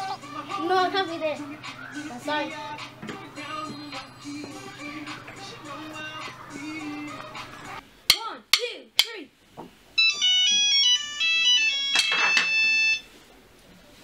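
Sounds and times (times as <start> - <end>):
mobile phone ringtone melody: 10.0 - 13.1.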